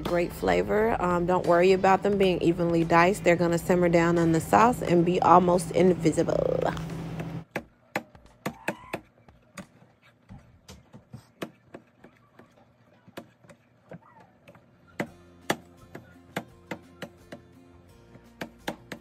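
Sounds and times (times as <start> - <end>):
knife chopping on metal tray: 7.5 - 17.4, 18.1 - 19.0.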